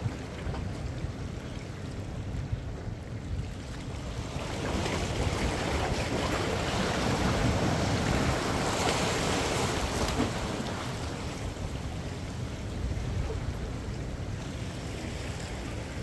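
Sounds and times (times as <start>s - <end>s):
waves washing against rocks: 4.1s - 16.0s.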